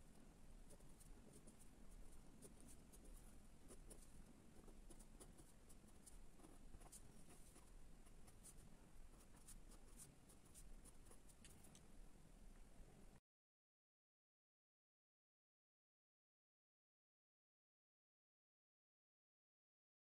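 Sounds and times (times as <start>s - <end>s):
pen scratching on paper: 0.7s - 11.7s.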